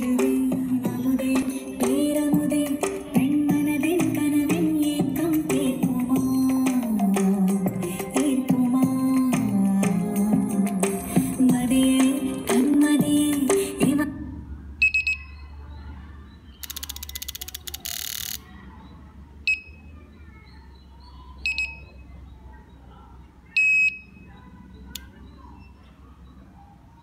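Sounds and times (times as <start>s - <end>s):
music playing: 0.0s - 14.3s
piezo buzzer beeping: 21.4s - 21.9s.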